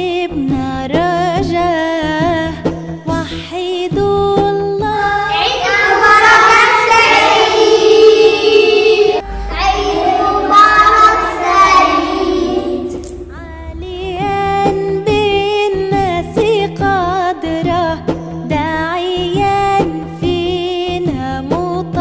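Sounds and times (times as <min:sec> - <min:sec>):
instrumental background music: 0:00.0 - 0:22.0
children singing: 0:04.9 - 0:13.4.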